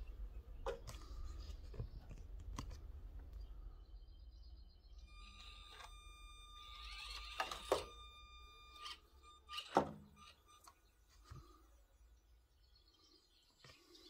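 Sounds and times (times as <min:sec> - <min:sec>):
small electric motor whining: 0:05.0 - 0:11.6.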